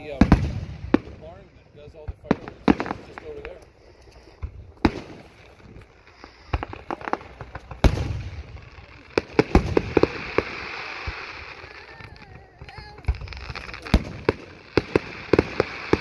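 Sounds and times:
fireworks shells bursting: 0:02.1 - 0:16.0
fireworks hissing: 0:02.2 - 0:16.0.

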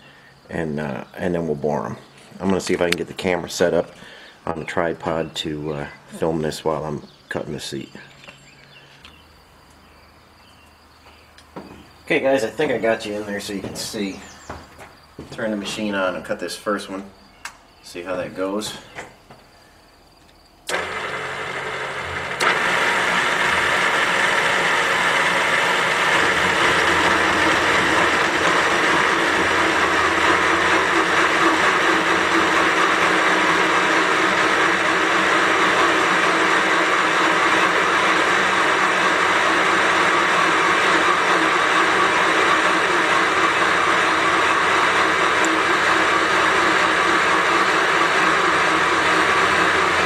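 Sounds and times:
machine switching on: 0:20.7 - 0:33.8, 0:34.7 - 0:50.0
cutter boring into cast iron: 0:20.7 - 0:50.0.

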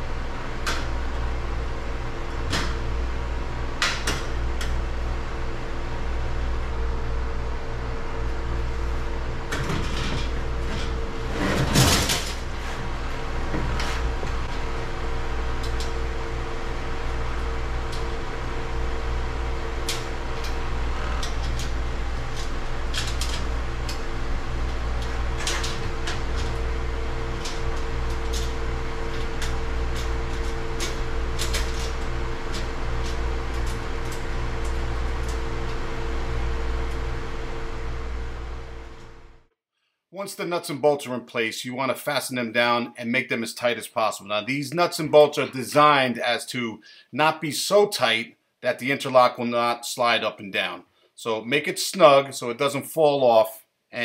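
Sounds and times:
steady mechanical hum: 0:00.0 - 0:39.5
metal clatter: 0:09.6 - 0:12.9.

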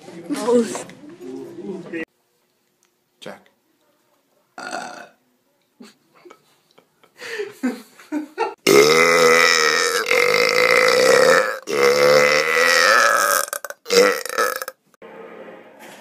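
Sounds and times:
man belching loudly: 0:04.6 - 0:05.2, 0:08.6 - 0:14.8.

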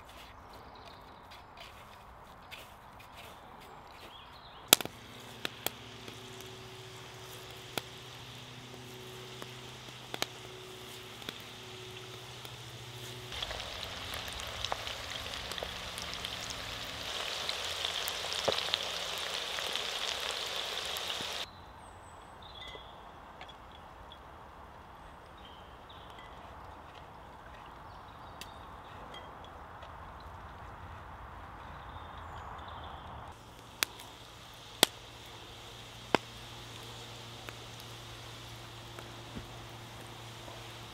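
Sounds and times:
food deep-frying in oil: 0:04.7 - 0:21.5, 0:33.3 - 0:40.9
oil popping and crackling: 0:04.7 - 0:21.5, 0:33.3 - 0:40.9.

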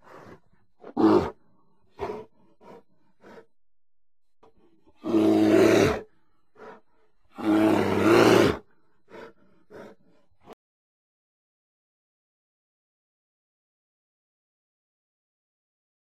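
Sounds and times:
bear roaring: 0:00.0 - 0:03.4, 0:04.9 - 0:10.6
bear grunting: 0:00.0 - 0:03.5, 0:04.6 - 0:10.6.

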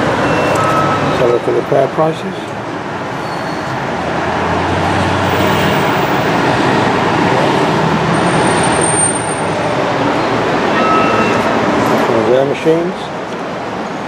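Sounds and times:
road traffic roar: 0:00.0 - 0:14.0.

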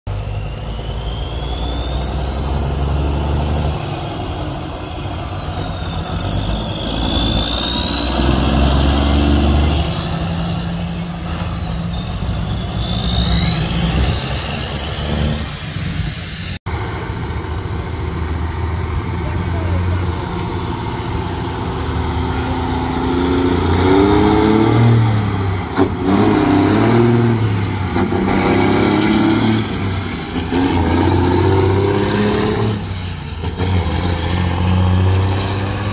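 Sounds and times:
turbo whistle: 0:00.1 - 0:18.8
diesel truck engine shifting gears: 0:00.1 - 0:35.9.

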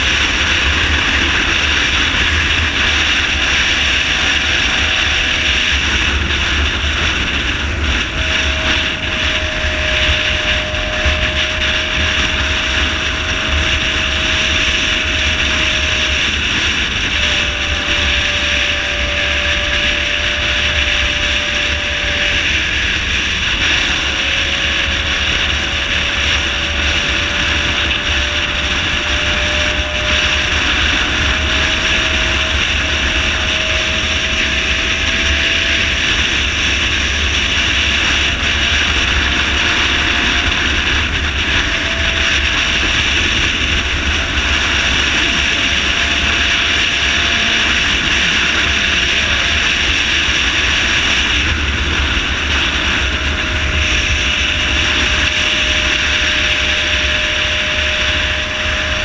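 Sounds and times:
motorcycle engine whine: 0:00.0 - 0:59.0
wind and road noise: 0:00.0 - 0:59.0.

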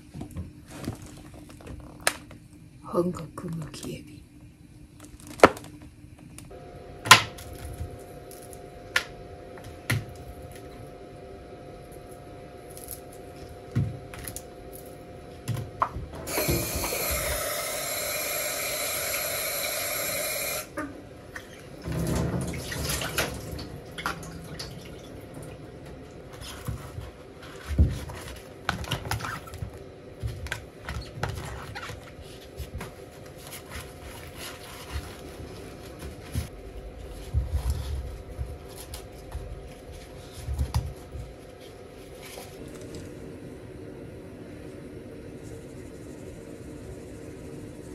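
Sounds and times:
faint steady hum: 0:00.0 - 0:47.9
water splashing: 0:21.4 - 0:26.3.

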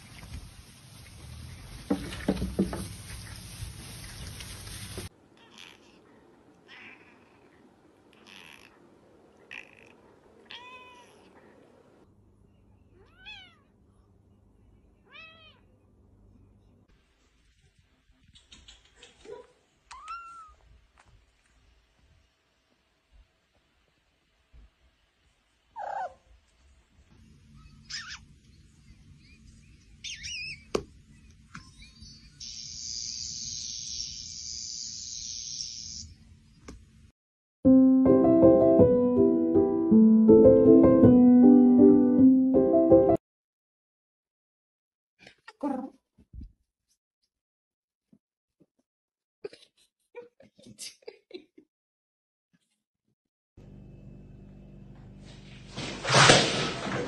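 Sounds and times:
steady hiss: 0:00.0 - 0:05.1
cats meowing: 0:05.4 - 0:11.5, 0:13.0 - 0:13.7
bird-like chirps: 0:27.4 - 0:36.1.

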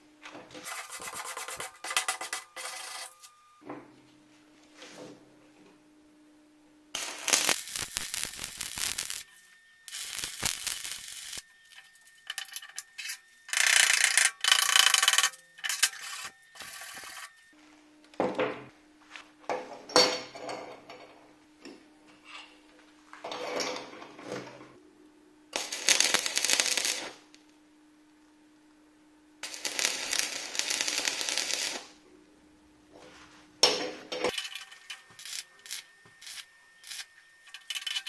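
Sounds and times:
faint hum: 0:00.0 - 0:38.0
wire brush scraping metal: 0:00.6 - 0:03.3, 0:07.0 - 0:17.4, 0:34.3 - 0:38.0
welding arc crackling: 0:00.7 - 0:03.2, 0:07.0 - 0:17.3, 0:25.6 - 0:27.4, 0:29.4 - 0:32.0, 0:34.3 - 0:38.0.

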